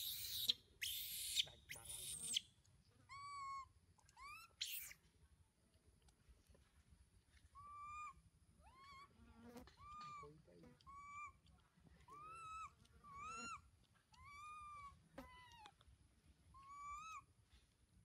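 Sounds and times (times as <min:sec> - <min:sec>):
monkey screeches: 0:00.0 - 0:02.4, 0:04.2 - 0:05.0, 0:10.9 - 0:11.4, 0:12.1 - 0:13.6
monkey coo calls: 0:10.8 - 0:11.4.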